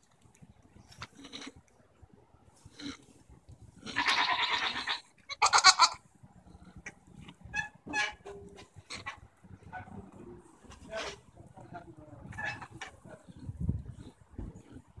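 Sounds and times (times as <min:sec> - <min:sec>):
goat rattling calls: 0:03.8 - 0:06.0.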